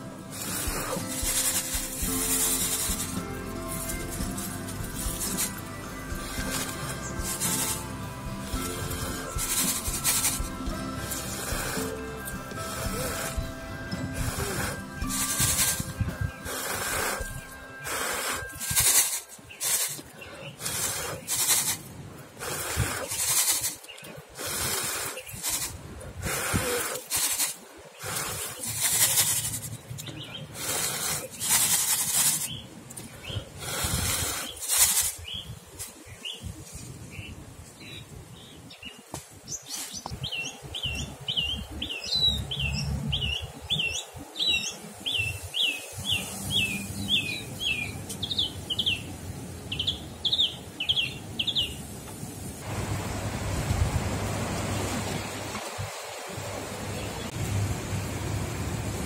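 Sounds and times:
songbird chirping: 0.0s - 52.3s
puffs of breath blowing: 0.2s - 29.7s, 30.5s - 32.5s, 33.2s - 35.2s.

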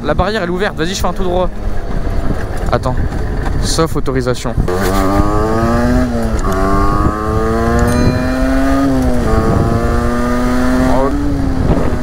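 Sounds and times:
dirt bike engine accelerating: 4.7s - 12.0s.

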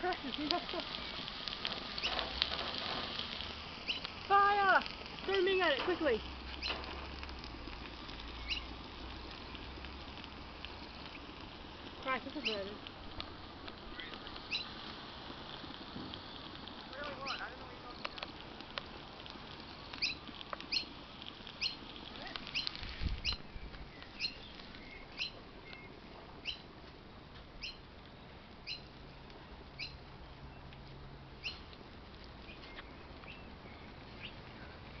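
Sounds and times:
bird chirping: 3.8s - 4.1s, 8.3s - 8.8s, 13.9s - 14.7s, 20.0s - 21.0s, 21.6s - 21.8s, 22.5s - 26.7s, 27.6s - 29.2s, 29.8s - 30.7s, 31.4s - 31.7s, 32.5s - 35.0s.

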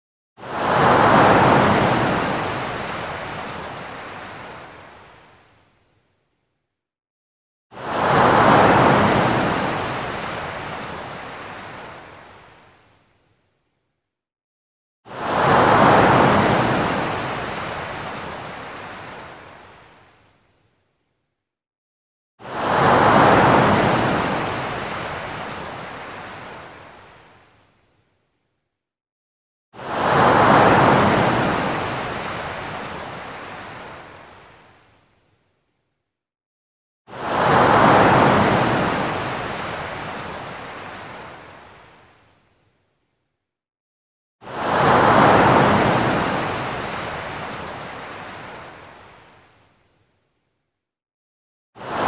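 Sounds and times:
wave breaking and washing in: 0.4s - 5.5s, 7.8s - 12.8s, 15.1s - 20.3s, 22.4s - 27.5s, 29.8s - 34.8s, 37.1s - 42.2s, 44.4s - 49.6s, 51.8s - 52.0s
wave breaking into surf: 44.6s - 48.1s.

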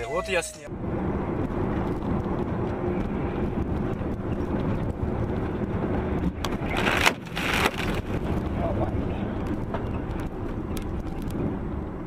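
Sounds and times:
engine and road drone in cab: 0.0s - 12.0s.

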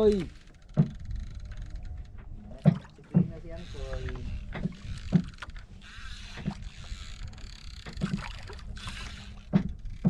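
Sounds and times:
water on boat hull: 0.0s - 10.0s
wind: 0.0s - 10.0s
dull knocks on wooden boat: 0.7s - 1.0s, 2.6s - 3.4s, 4.5s - 5.4s, 7.9s - 8.3s, 9.5s - 9.8s.

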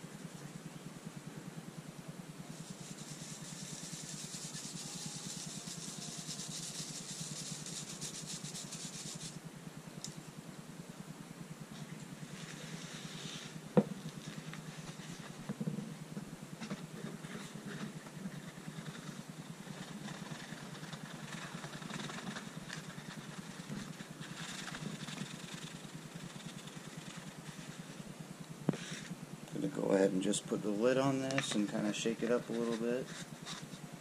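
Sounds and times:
low hum: 0.0s - 34.0s
paper and powder rustling: 12.2s - 15.5s, 16.7s - 28.0s, 31.1s - 33.9s.

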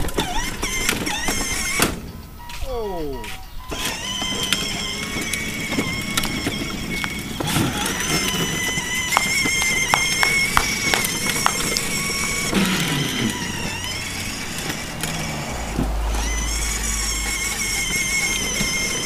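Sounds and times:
toy car electric motor whining: 0.0s - 19.0s
low rumble: 13.8s - 18.5s.

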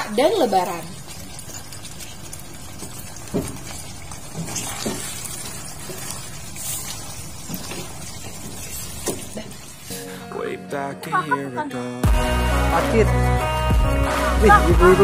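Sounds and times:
wet stirring in sauce: 0.0s - 10.3s.

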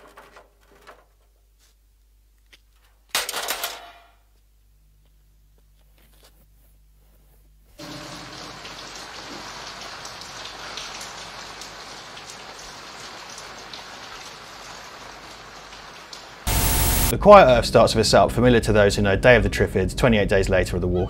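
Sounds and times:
steady rain: 7.8s - 17.1s.

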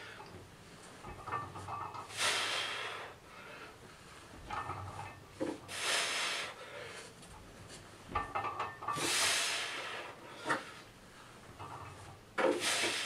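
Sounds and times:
man exhaling hard: 12.5s - 13.0s.

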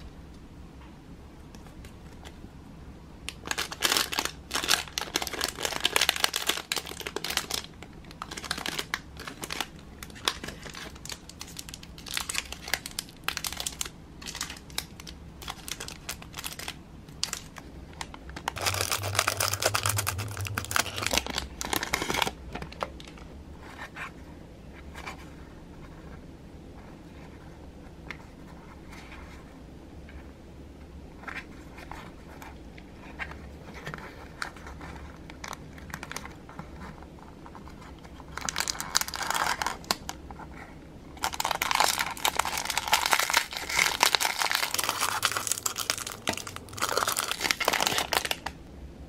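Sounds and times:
plastic packaging crinkling: 3.3s - 23.3s, 37.6s - 40.2s, 41.2s - 48.6s.

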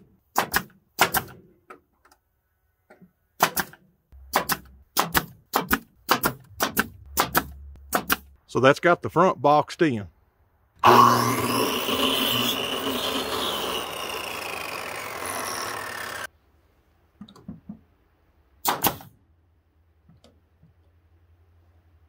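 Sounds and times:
brad nailer firing: 0.0s - 1.5s, 3.4s - 8.3s, 10.8s - 16.3s, 18.6s - 19.2s
miter saw cutting wood: 10.8s - 16.3s.

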